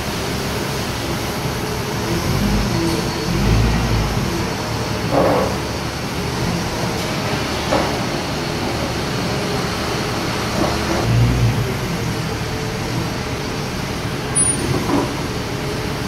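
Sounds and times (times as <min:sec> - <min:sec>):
forklift diesel engine running: 0:00.0 - 0:16.0.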